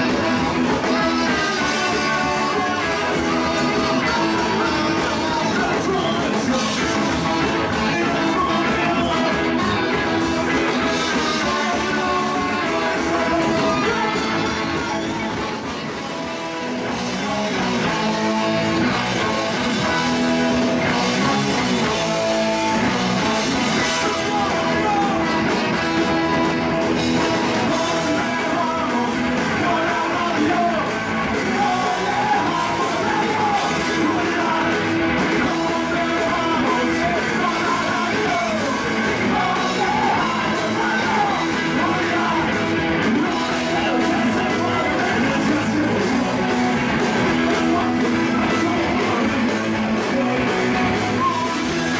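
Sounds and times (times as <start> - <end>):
brass horn: 0.0 - 29.1
drums: 0.0 - 51.9
electric guitars: 0.0 - 51.9
sung and shouted vocals: 0.0 - 51.9.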